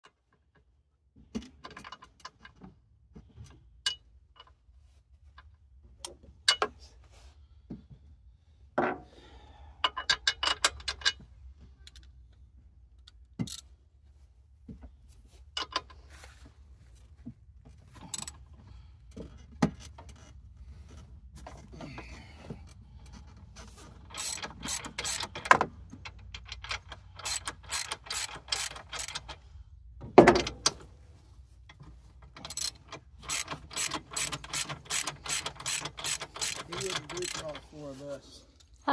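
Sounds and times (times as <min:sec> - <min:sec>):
socket ratchet clicking: 0:24.1 - 0:25.6, 0:26.2 - 0:29.4, 0:32.4 - 0:37.6.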